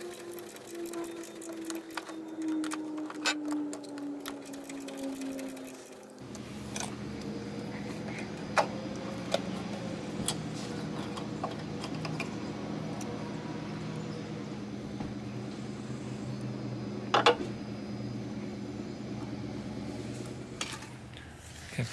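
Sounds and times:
metal parts clicking: 0.0s - 6.9s
steady low hum: 0.0s - 21.9s.

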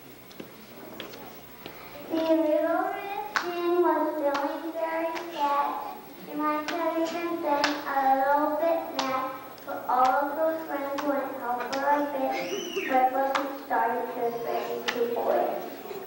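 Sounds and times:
child singing: 2.1s - 15.5s
hand claps: 3.3s - 3.6s, 6.6s - 6.9s, 7.6s - 7.9s, 9.0s - 9.2s, 10.0s - 10.2s, 10.9s - 12.0s, 12.8s - 13.6s, 14.8s - 15.1s.

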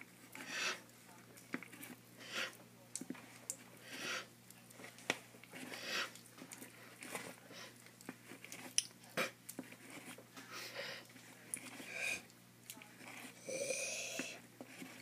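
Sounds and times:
tortoise chewing food: 0.0s - 15.0s.

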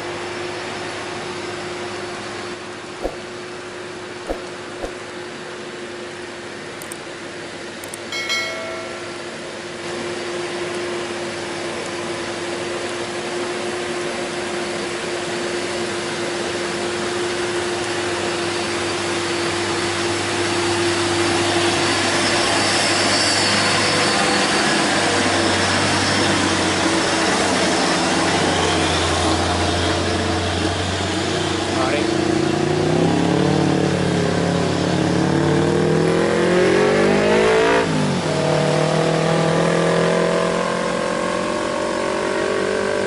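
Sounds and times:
short pitched tone: 8.1s - 9.4s.

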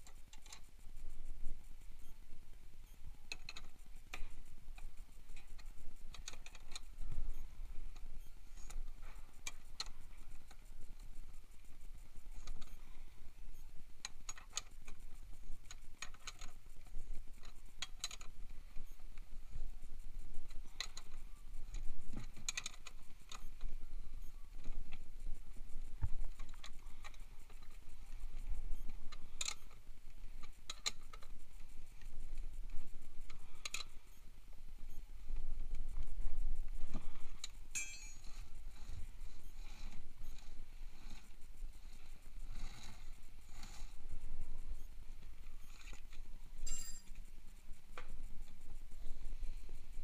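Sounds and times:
wrench clinking against nuts: 37.7s - 38.3s, 46.6s - 47.2s.

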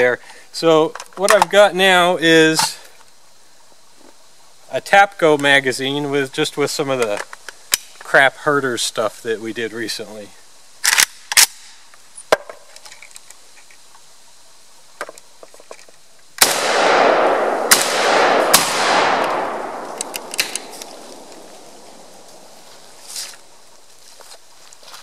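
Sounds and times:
rifle shots echoing: 16.4s - 22.6s.

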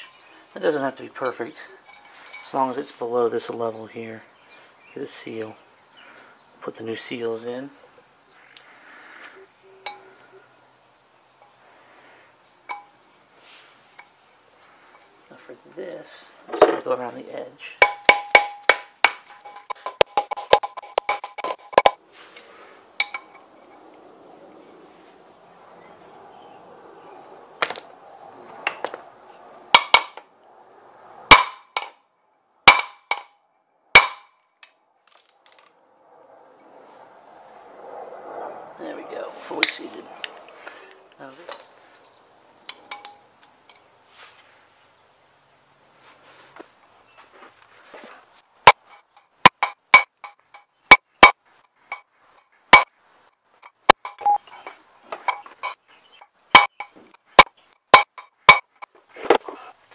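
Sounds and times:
hammer striking metal driver: 17.8s - 22.0s, 32.7s - 33.3s.

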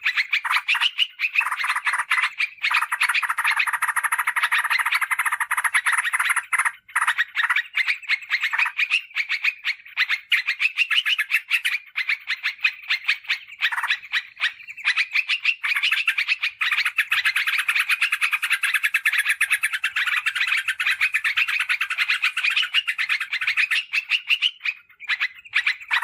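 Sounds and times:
bird fast chattering calls: 0.0s - 26.0s.

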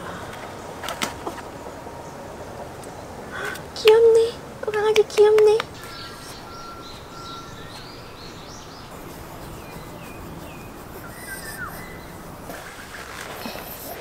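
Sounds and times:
steady outdoor hiss: 0.0s - 14.0s
small birds chirping: 1.5s - 14.0s
bird whistle: 5.8s - 8.8s, 9.5s - 13.0s.

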